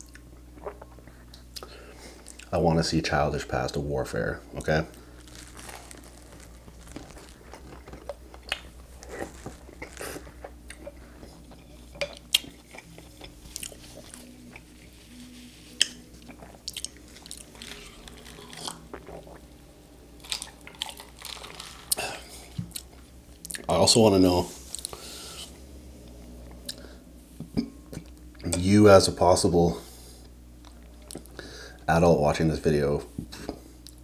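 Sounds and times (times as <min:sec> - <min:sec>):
toast crunching: 0:04.5 - 0:15.0, 0:15.6 - 0:19.5, 0:20.2 - 0:23.7
pasta being chewed: 0:04.9 - 0:23.7.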